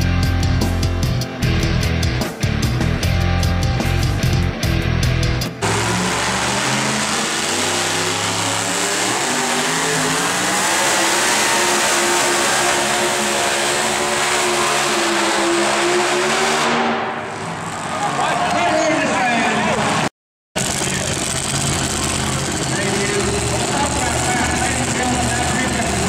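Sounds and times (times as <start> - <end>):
truck engine at full throttle: 3.8 - 17.8, 19.6 - 26.0.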